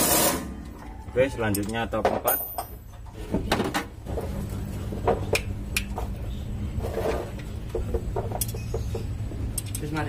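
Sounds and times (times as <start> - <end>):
light metallic clicks and taps: 9.5 - 10.0.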